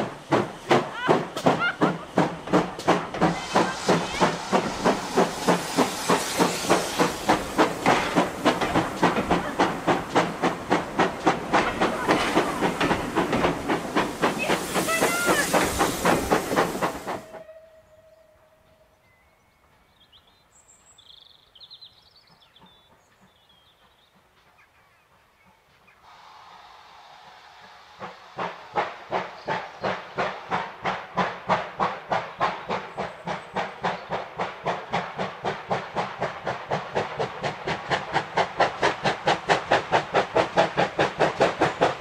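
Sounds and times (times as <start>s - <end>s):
steam hiss: 0.0s - 17.5s, 25.1s - 42.0s
steam engine exhaust beating: 0.0s - 17.6s, 26.0s - 42.0s.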